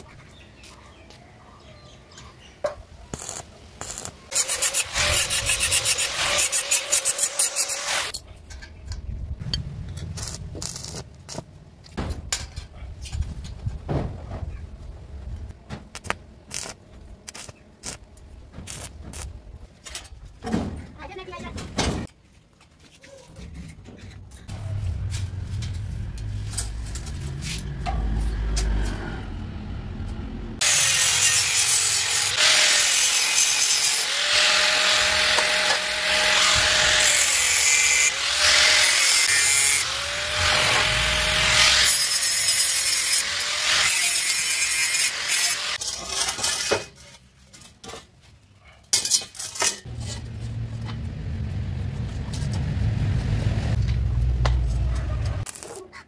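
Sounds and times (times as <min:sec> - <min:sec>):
angle grinder cutting steel: 0:03.2 - 0:08.2, 0:30.6 - 0:46.7.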